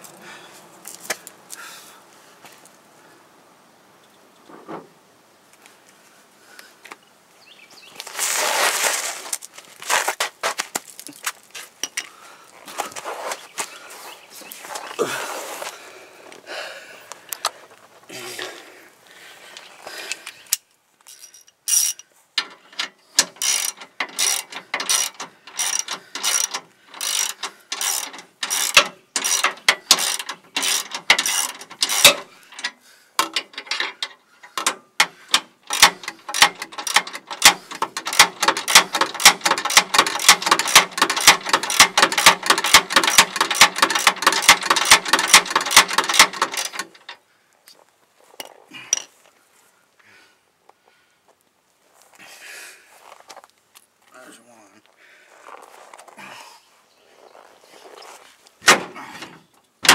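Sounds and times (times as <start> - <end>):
ratchet wrench clicking: 21.1 - 33.9, 35.7 - 47.2.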